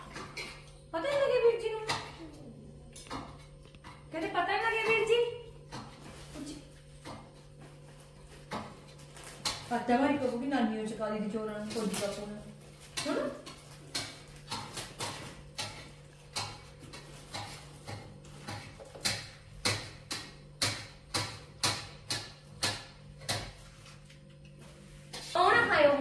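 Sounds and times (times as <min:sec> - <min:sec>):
clicks and crackles of eating: 0:00.0 - 0:04.1, 0:11.6 - 0:24.6.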